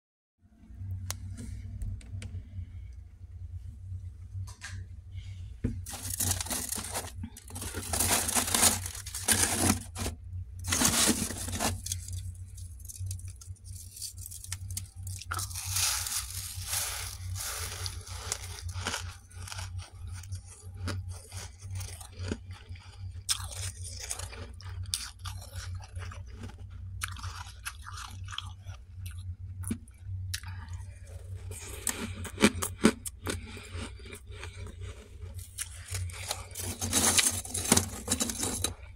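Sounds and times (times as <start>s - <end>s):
low hum: 0.4s - 20.4s
frost being chewed: 5.8s - 38.9s.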